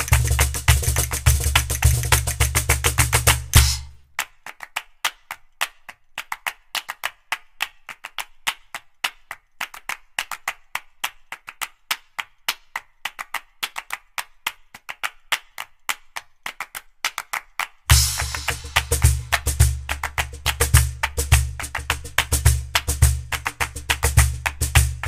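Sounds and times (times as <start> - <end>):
wood block percussion clicks: 0.0 - 3.9, 17.9 - 25.0.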